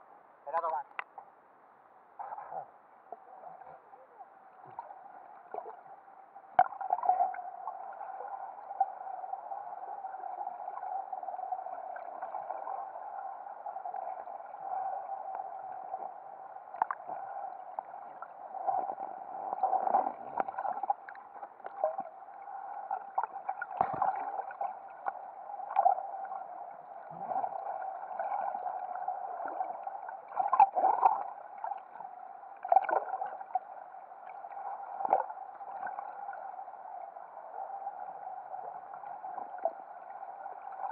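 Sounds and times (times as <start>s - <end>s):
muffled underwater hum: 2.1s - 40.9s
water gurgling and knocking: 23.8s - 24.3s.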